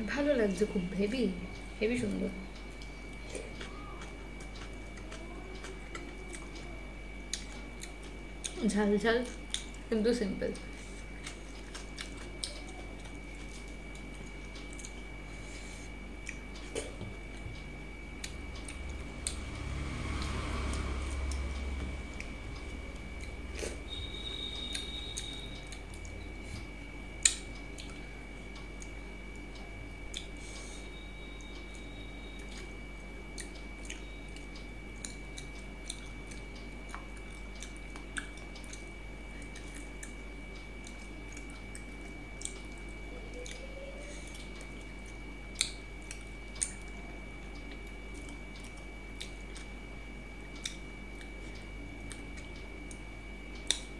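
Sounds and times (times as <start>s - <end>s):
chewing: 2.6s - 8.7s, 10.6s - 17.4s, 27.2s - 30.6s, 32.3s - 49.9s, 50.5s - 53.9s
fingers mixing food: 10.5s - 19.6s.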